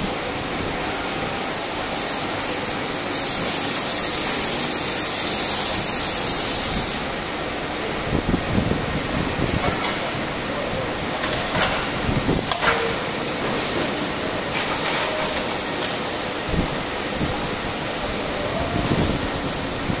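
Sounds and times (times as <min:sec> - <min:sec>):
packing machine clatter and hum: 0:00.0 - 0:20.0.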